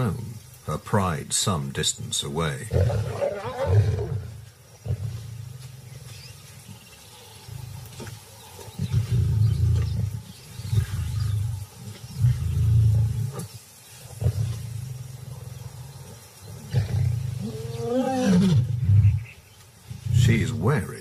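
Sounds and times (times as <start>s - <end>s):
lions growling: 2.6s - 21.0s.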